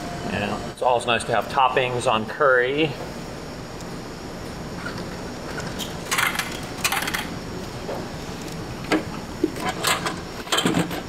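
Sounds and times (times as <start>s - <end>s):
vending machine clicks and clatters: 5.6s - 7.3s, 8.9s - 11.0s.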